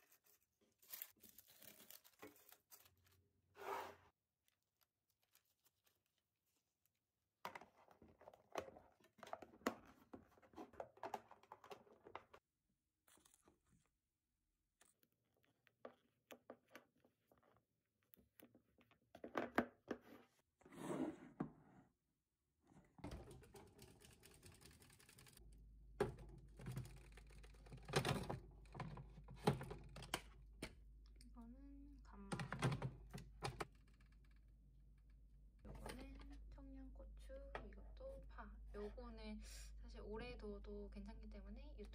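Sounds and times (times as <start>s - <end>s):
parchment paper crinkling: 0.0s - 3.5s, 4.4s - 7.1s.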